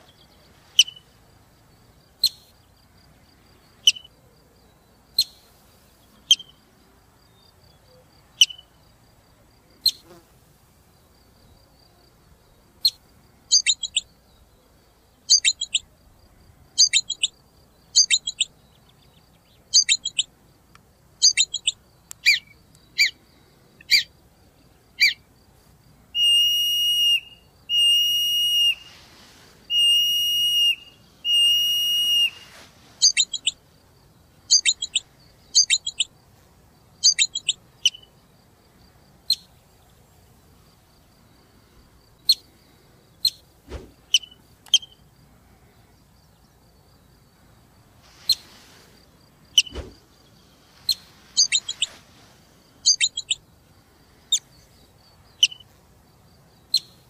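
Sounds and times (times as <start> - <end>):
marmot whistle calls: 3.8 - 4.1, 13.5 - 14.0, 15.3 - 15.8, 16.8 - 17.3, 18.0 - 18.5, 19.7 - 20.3, 21.2 - 23.2, 25.0 - 25.2, 26.2 - 28.9, 29.7 - 33.6, 34.5 - 35.0, 35.6 - 36.1, 37.0 - 38.1, 50.9 - 51.9, 52.9 - 53.4, 55.4 - 55.6.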